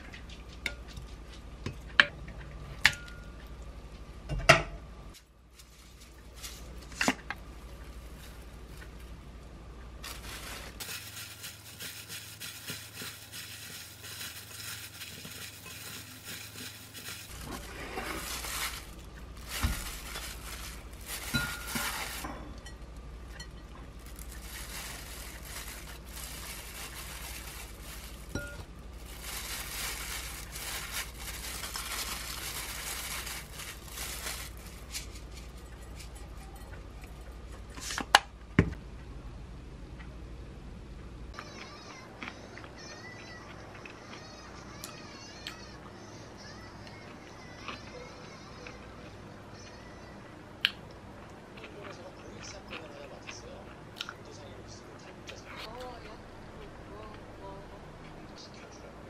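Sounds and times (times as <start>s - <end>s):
gloved hands handling wet noodles: 10.0s - 22.3s, 24.0s - 35.6s
glass bowl clinking: 21.2s - 23.7s, 28.3s - 28.7s.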